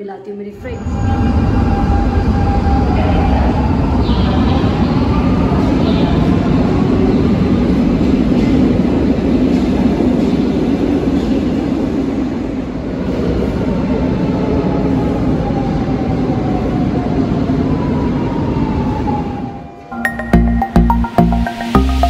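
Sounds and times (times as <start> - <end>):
metro train rumbling: 0.0 - 22.0.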